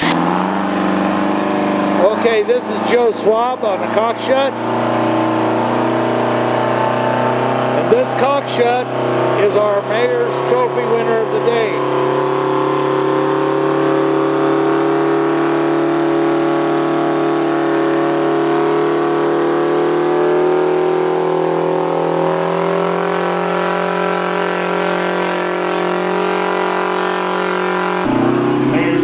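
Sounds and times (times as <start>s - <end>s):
tractor engine running hard: 0.0s - 29.0s.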